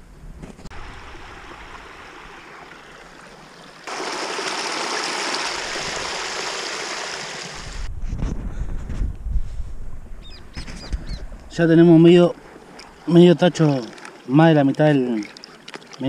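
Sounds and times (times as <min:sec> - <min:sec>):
water rushing over ledge: 0:00.7 - 0:07.9.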